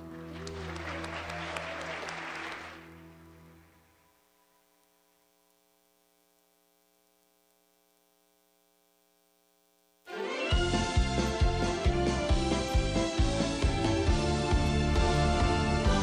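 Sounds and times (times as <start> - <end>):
faint electrical hum: 1.3 - 10.1.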